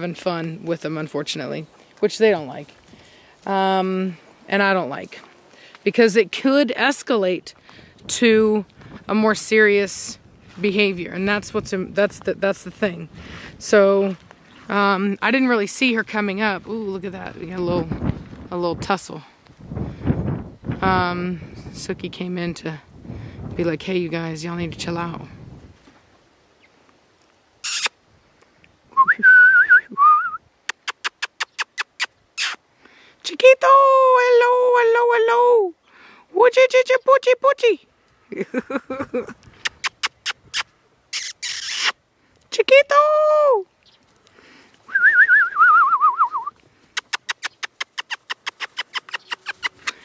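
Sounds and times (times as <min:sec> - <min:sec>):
mouth clicks: 0:27.6 - 0:28.0, 0:30.0 - 0:32.6, 0:39.4 - 0:42.0, 0:45.0 - 0:50.0
person whistling warbling: 0:29.0 - 0:30.4, 0:44.9 - 0:46.5
person shushing: 0:31.1 - 0:32.6.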